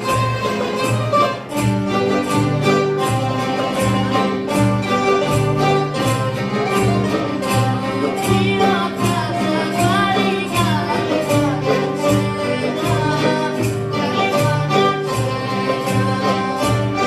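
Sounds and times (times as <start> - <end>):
bouzoukia guitars and accordion strumming: 0.0 - 17.0
girl singing: 7.3 - 17.0.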